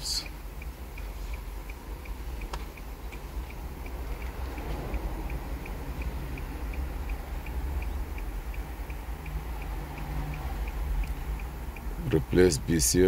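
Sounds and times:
regular ticking: 0:00.0 - 0:13.0
steady low hum: 0:00.0 - 0:13.0.

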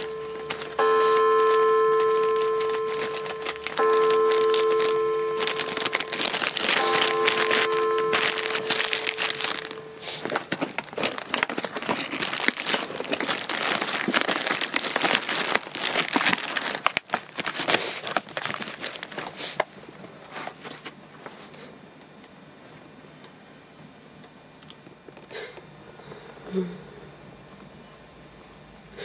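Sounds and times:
plastic bags crinkling: 0:00.0 - 0:20.9.

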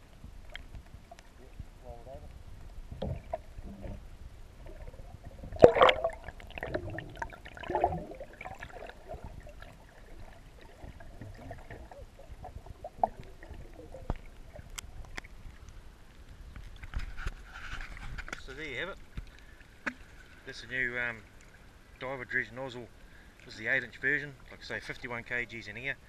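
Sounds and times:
water sloshing and gurgling: 0:00.0 - 0:25.4
loud splash: 0:05.6 - 0:09.2.

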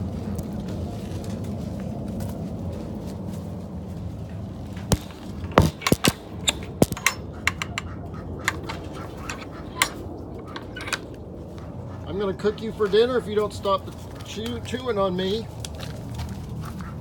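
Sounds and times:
low background rumble: 0:00.0 - 0:17.0
sharp clicks and knocks: 0:04.8 - 0:11.2.

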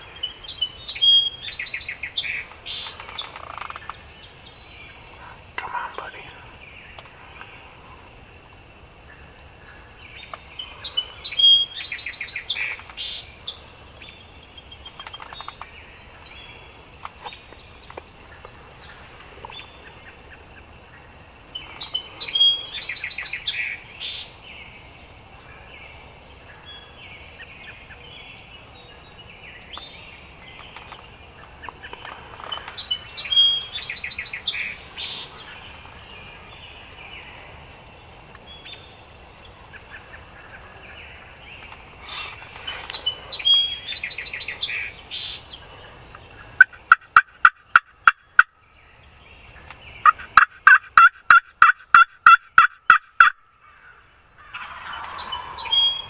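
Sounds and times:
turkey gobbling: 0:50.0 - 0:53.4, 0:54.4 - 0:56.0.

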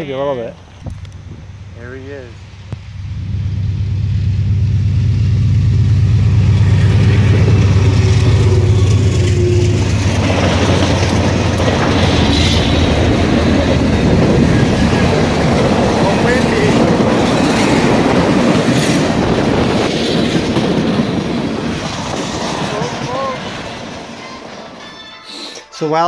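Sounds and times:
locomotive engine drone: 0:00.6 - 0:25.0
train wheels clattering on rails: 0:06.6 - 0:25.1.

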